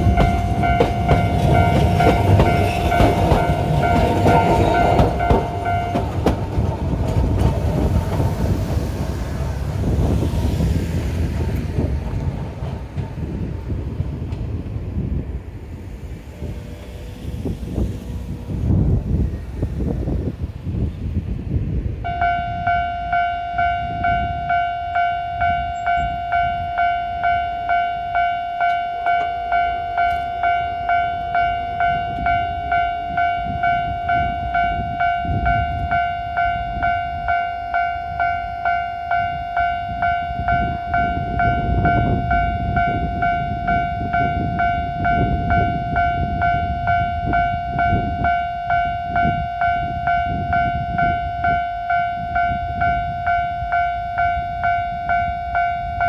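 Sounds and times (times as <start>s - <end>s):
level crossing warning bell: 0.0s - 8.1s, 22.0s - 56.0s.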